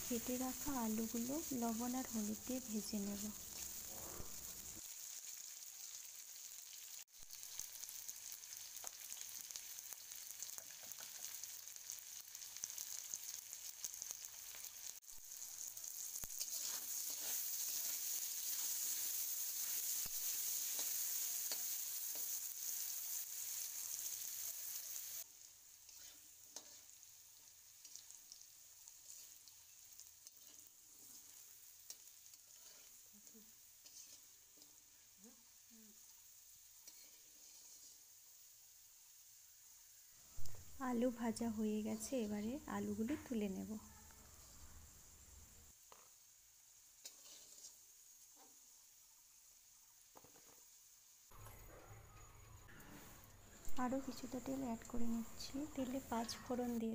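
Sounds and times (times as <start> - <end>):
potato wedges sizzling in oil: 0.0 - 56.9
metal spatula scraping wok: 3.1 - 4.8, 16.2 - 25.0, 25.7 - 27.1, 27.8 - 28.2, 28.8 - 34.8, 36.8 - 38.1, 47.0 - 48.5.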